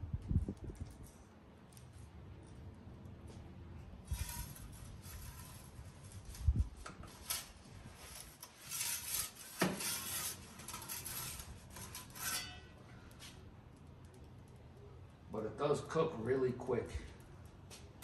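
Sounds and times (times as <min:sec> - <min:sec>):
pizza peel scraping oven floor: 0:04.0 - 0:13.4.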